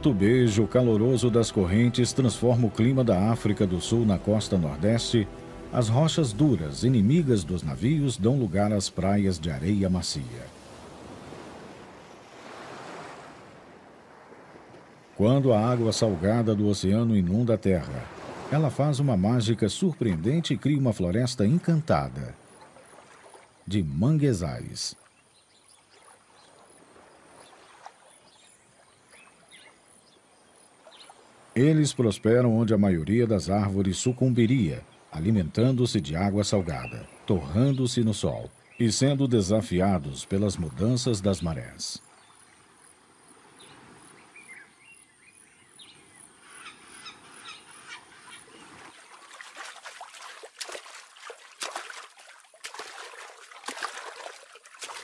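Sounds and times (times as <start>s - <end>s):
high bird calls: 43.5s - 50.3s
water clicks and drips: 48.9s - 55.0s.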